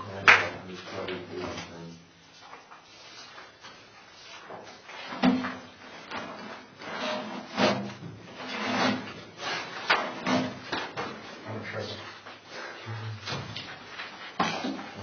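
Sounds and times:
objects knocking and scraping: 4.4 - 11.3, 13.2 - 15.0.

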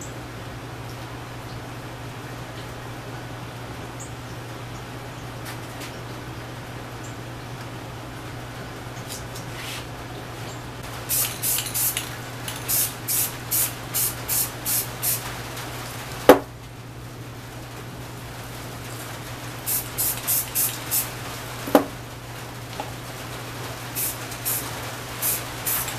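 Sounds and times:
spray can hissing bursts: 11.1 - 15.3, 19.6 - 21.2, 24.0 - 25.9
sharp knock: 21.7 - 21.9.

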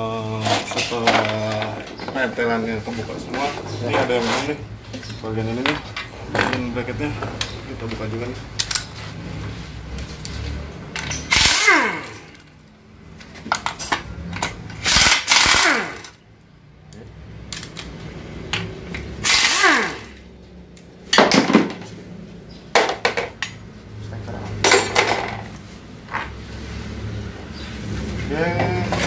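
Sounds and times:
impact wrench bursts: 11.0 - 12.5, 14.7 - 16.2, 19.0 - 20.3.

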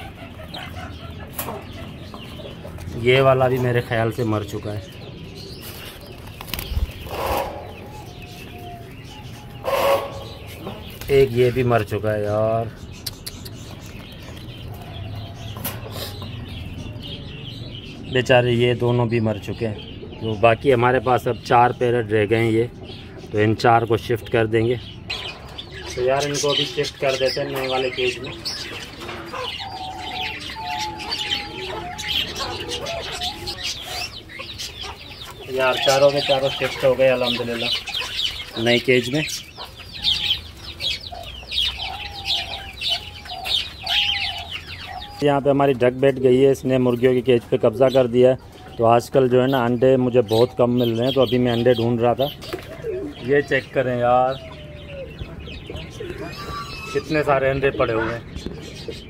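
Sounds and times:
hens clucking: 0.0 - 6.2, 6.9 - 12.6, 25.1 - 59.0
loud bird calls: 0.0 - 59.0.

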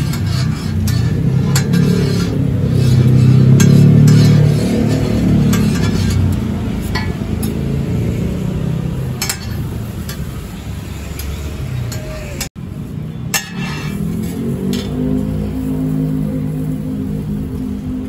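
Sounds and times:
metal utensils and dishes clinking: 0.0 - 8.0, 9.1 - 10.6, 13.3 - 15.3
low rumble: 0.5 - 10.0.

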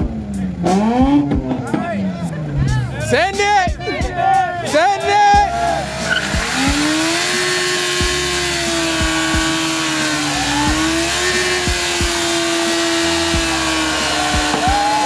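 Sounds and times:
motorcycle engine at high revs: 0.0 - 1.8, 5.9 - 15.0
tire spinning in burnout: 5.1 - 15.0.

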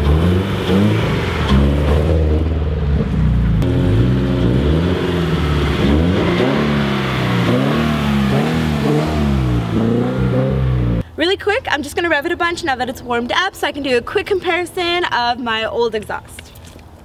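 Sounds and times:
car engine revving by: 0.0 - 11.0.

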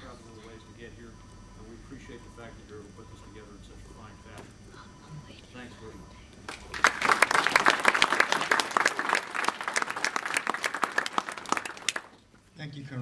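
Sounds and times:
audience applauding: 6.5 - 12.2.

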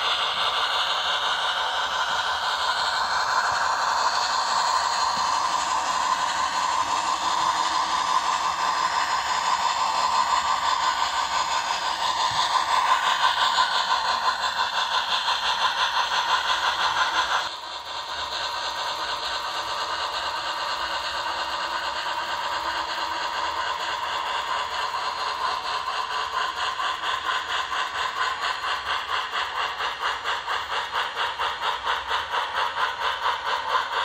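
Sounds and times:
model steam locomotive chuffing: 0.0 - 34.0
wheels rattling on track: 0.0 - 34.0.

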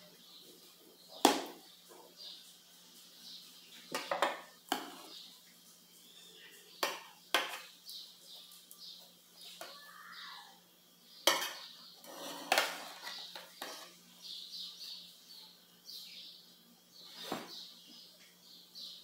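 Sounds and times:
cutlery clinking on metal pan: 6.8 - 7.7, 11.3 - 11.7.

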